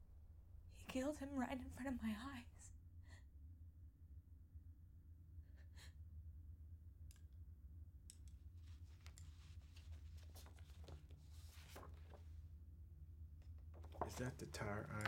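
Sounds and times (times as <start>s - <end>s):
low room hum: 0.0s - 15.0s
light clicks of a pen: 8.1s - 9.4s
paper rustling: 8.6s - 12.4s.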